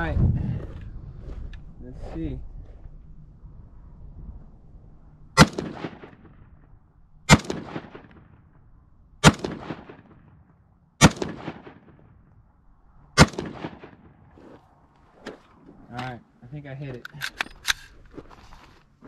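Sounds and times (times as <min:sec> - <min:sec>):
rifle shots with echo: 0:05.4 - 0:06.4, 0:07.3 - 0:08.6, 0:09.2 - 0:12.2, 0:13.2 - 0:14.2.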